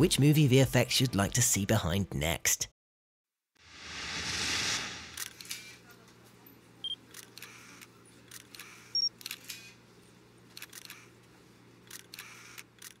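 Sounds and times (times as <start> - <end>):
camera clicks and rattles: 8.3 - 9.7, 10.5 - 11.1, 11.8 - 13.0.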